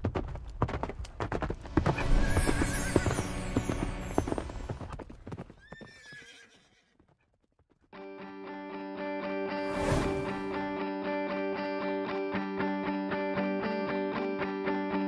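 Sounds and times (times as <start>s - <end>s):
horse hooves galloping: 0.0s - 8.0s
horse whinnying: 5.6s - 6.9s.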